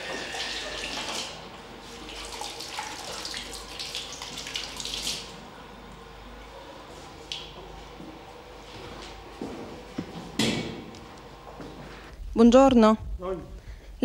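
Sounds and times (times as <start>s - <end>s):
tap water running into sink: 0.0s - 5.4s.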